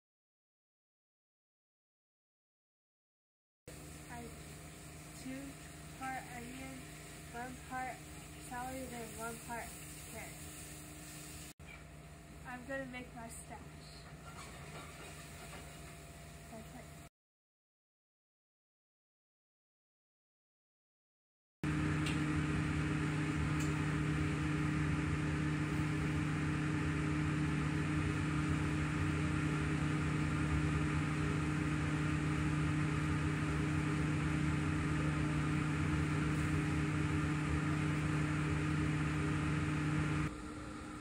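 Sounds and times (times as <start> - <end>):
kitchen ventilation humming: 3.7 - 17.1, 21.6 - 41.0.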